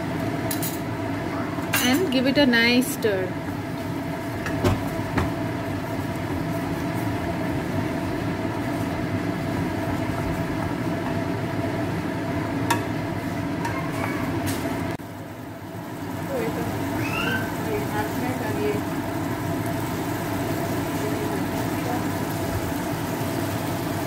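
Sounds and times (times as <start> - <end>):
gravy sizzling in a pan: 0.0 - 24.0.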